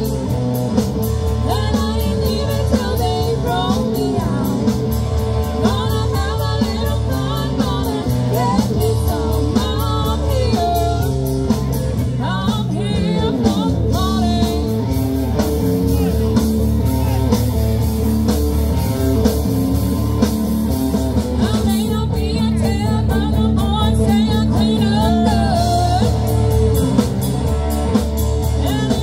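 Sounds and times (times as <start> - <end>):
bass: 0.0 - 29.0
electric guitar: 0.0 - 29.0
person singing: 1.3 - 4.8, 5.5 - 14.9, 21.4 - 26.4, 28.4 - 29.0
drum beat: 13.1 - 29.0.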